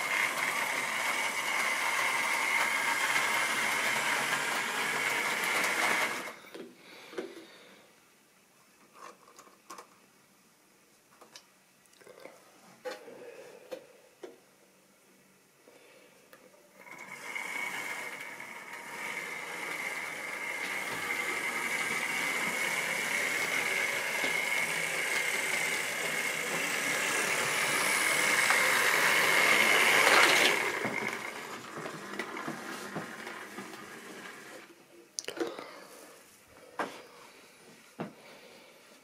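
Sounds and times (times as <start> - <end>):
model train motor whine: 0.0 - 6.4, 16.8 - 34.7.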